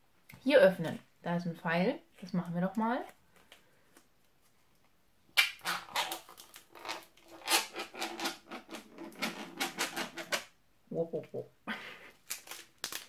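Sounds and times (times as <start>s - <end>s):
plastic wrapper tearing: 5.4s - 10.4s, 12.1s - 13.0s.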